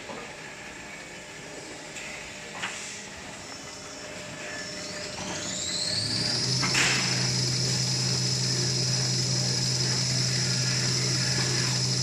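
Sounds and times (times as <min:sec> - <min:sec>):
factory machinery running: 0:00.1 - 0:12.0
high whine: 0:04.1 - 0:12.0.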